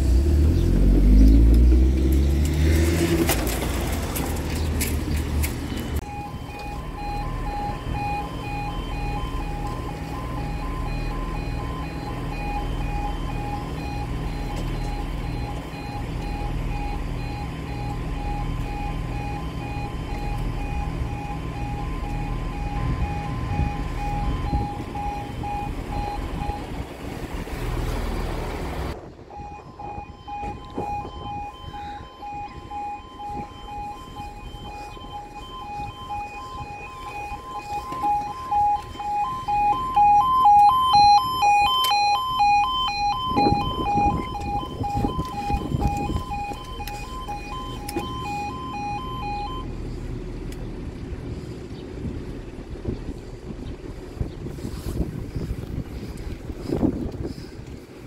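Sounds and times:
heavy low rumble: 0:03.4 - 0:58.0
level-crossing alarm two-tone: 0:06.0 - 0:26.8, 0:29.3 - 0:49.7.

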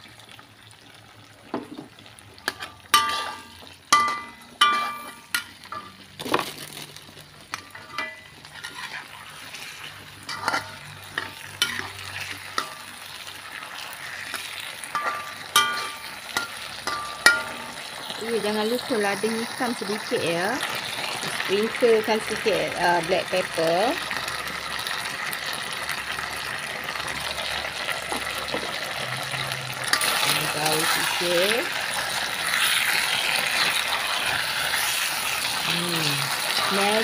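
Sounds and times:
frying sizzle: 0:00.0 - 0:37.0
metal spatula scraping a wok: 0:02.4 - 0:05.9, 0:07.5 - 0:17.8, 0:29.4 - 0:35.3.

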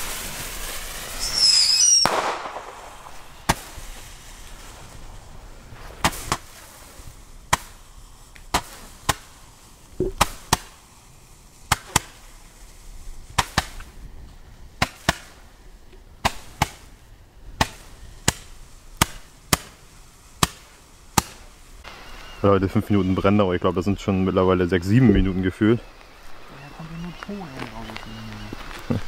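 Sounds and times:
firework sharp cracks: 0:00.0 - 0:22.4.

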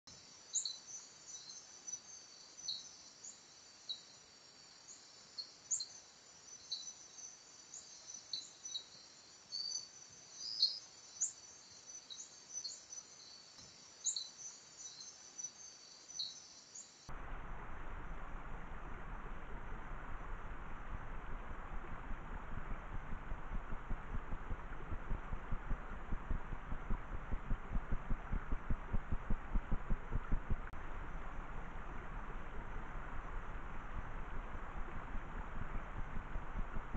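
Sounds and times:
insect chirps: 0:00.1 - 0:36.9
insects trilling: 0:00.2 - 0:17.1
forest stream rushing: 0:17.1 - 0:36.9.

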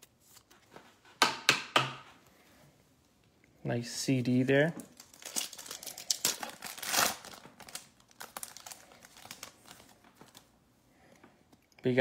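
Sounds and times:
cards rustling: 0:04.7 - 0:10.6
foil wrapper crinkling and tearing: 0:04.9 - 0:10.5.

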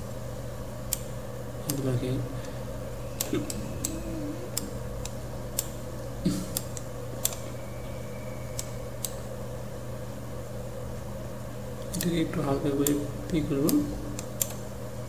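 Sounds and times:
low electrical hum: 0:00.0 - 0:15.0
computer mouse clicking: 0:06.5 - 0:07.5, 0:08.6 - 0:09.2, 0:12.8 - 0:14.6.

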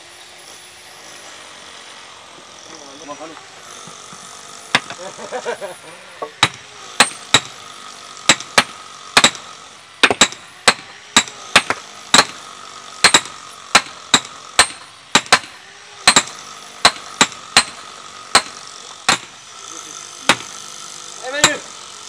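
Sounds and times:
sledgehammers clanking on steel stakes: 0:04.1 - 0:05.0, 0:06.2 - 0:07.6, 0:08.3 - 0:12.4, 0:13.0 - 0:19.4, 0:20.3 - 0:20.6, 0:21.4 - 0:21.7.

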